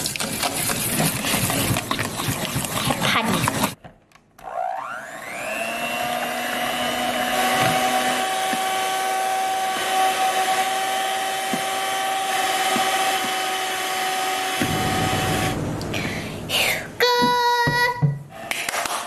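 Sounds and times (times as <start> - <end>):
electric mixer whipping eggs: 0.0 - 3.8, 4.4 - 15.5.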